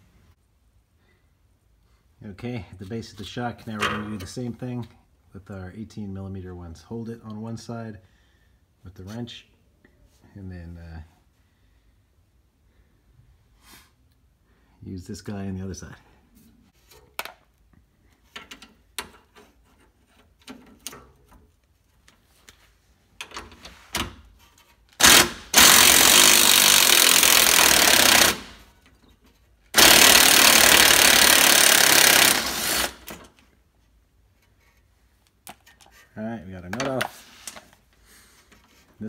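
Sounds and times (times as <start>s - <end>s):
tools clicking and knocking: 18.3s - 21.3s
impact driver hammering: 25.0s - 28.6s, 29.8s - 33.2s.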